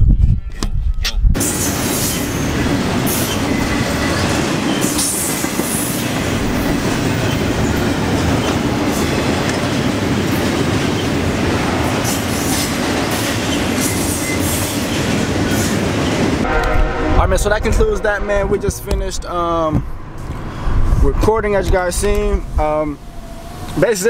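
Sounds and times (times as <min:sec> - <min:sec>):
train wheels rumbling on rails: 0:01.3 - 0:24.0
clicks and clatter from train cars: 0:01.4 - 0:16.4.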